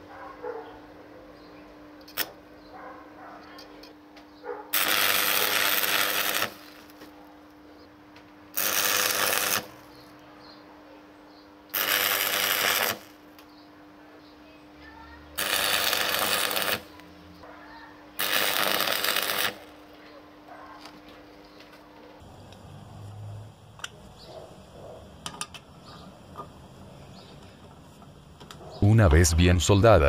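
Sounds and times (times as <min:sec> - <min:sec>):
arc welding crackle: 0:02.1 - 0:02.4, 0:04.7 - 0:07.1, 0:08.5 - 0:10.2, 0:11.7 - 0:13.5, 0:15.4 - 0:17.1, 0:18.2 - 0:19.9.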